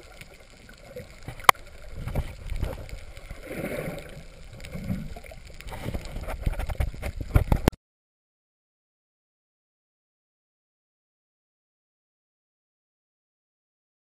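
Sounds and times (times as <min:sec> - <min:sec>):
low rumbling water and boat: 0:00.0 - 0:07.8.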